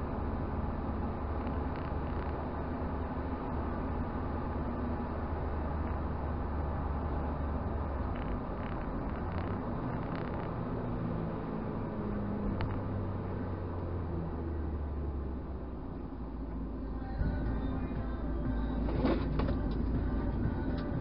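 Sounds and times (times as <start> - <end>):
car engine and road noise drone: 0.0 - 21.0.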